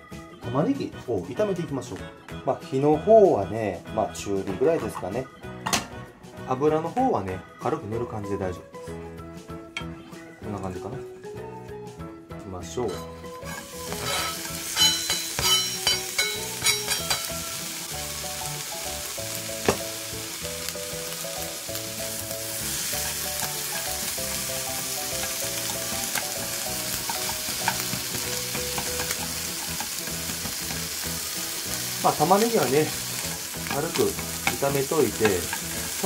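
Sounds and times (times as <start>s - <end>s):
onion slices clattering into pan: 12.9s - 17.4s, 19.6s - 19.9s, 25.2s - 31.0s, 32.2s - 36.0s
onion sizzling in frying pan: 12.9s - 36.0s.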